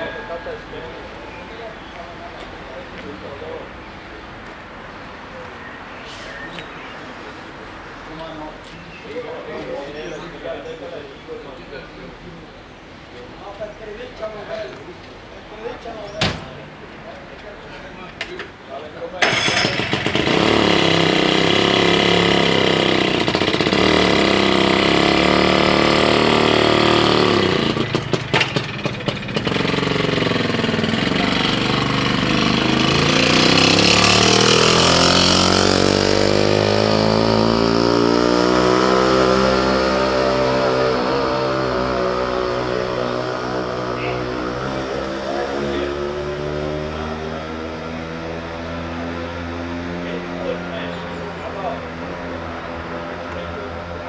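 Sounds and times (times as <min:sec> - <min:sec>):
small engine running: 0:19.2 - 0:38.8.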